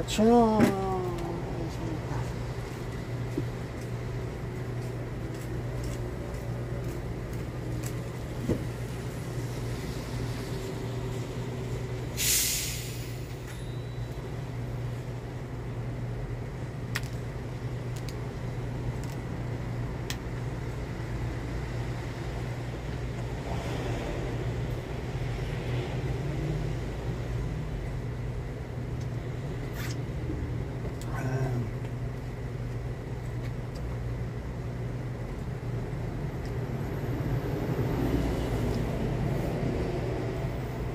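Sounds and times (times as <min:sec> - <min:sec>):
steady low hum: 0:00.0 - 0:12.2, 0:12.8 - 0:40.9
bottle cap hiss of carbonation: 0:12.2 - 0:13.1.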